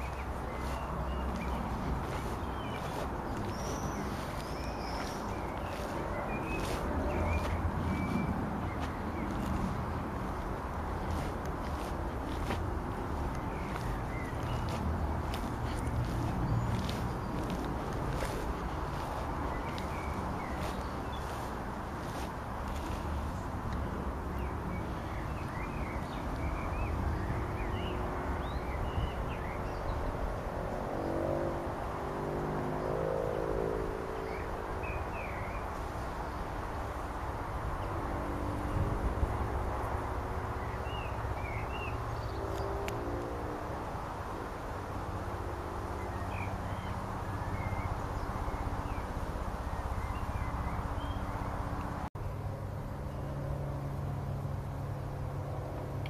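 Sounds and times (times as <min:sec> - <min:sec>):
low outdoor rumble: 0:00.0 - 0:27.4
small birds chirping: 0:00.0 - 0:31.1, 0:45.8 - 0:52.3
distant engine hum: 0:00.0 - 0:56.0
wind rumbling on microphone: 0:33.8 - 0:41.3.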